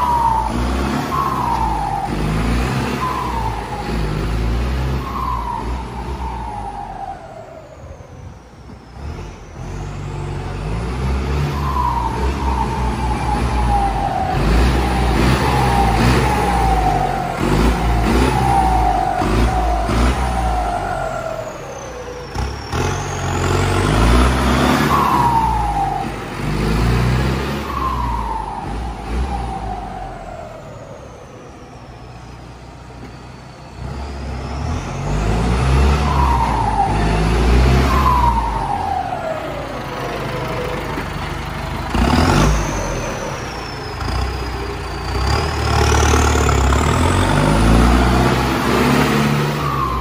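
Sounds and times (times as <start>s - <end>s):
turbo whistle falling in pitch: 0.0s - 7.4s, 11.4s - 21.5s, 27.4s - 30.7s
diesel tractor engine revving: 0.0s - 50.0s.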